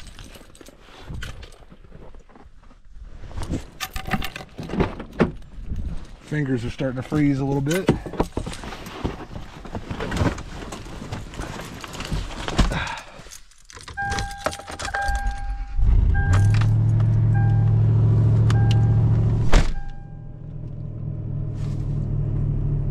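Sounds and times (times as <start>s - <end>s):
keys jangling: 0.0s - 1.6s, 11.3s - 17.2s
dashboard chime beeping: 14.0s - 16.7s, 17.3s - 20.4s.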